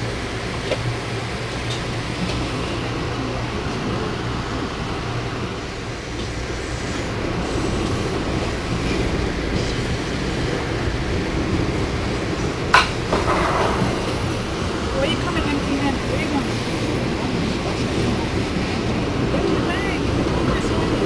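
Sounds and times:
train car rumbling on track: 0.0 - 21.0.

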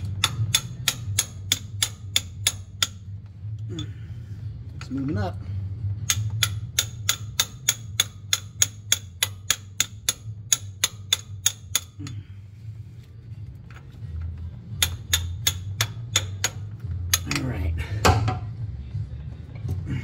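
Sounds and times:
ratchet wrench clicking: 0.0 - 3.0, 6.0 - 12.1, 14.8 - 17.5.

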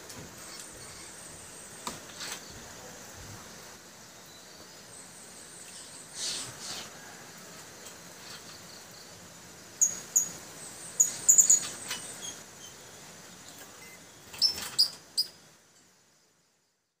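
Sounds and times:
birds chirping high and sharp: 9.8 - 12.8.

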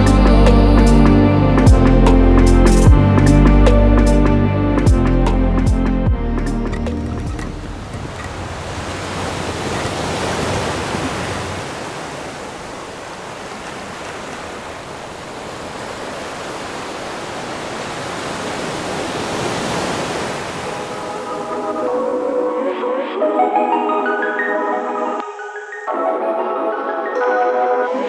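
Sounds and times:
surf hissing: 7.4 - 22.0.

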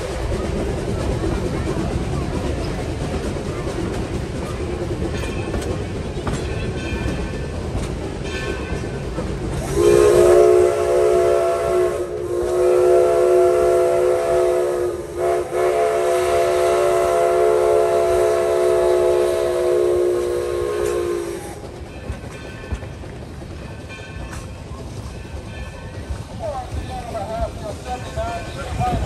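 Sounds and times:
train running noise: 0.0 - 29.0
steam locomotive whistle: 9.6 - 21.7.

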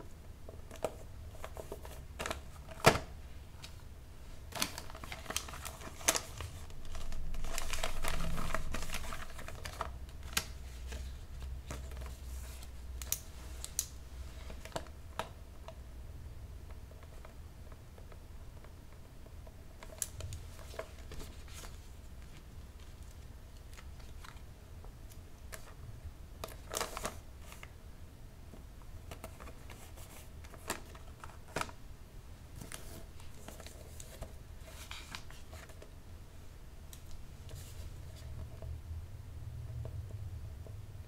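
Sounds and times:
wrapping paper rustling: 3.6 - 14.9, 19.8 - 24.4, 26.4 - 27.7, 32.6 - 35.9.

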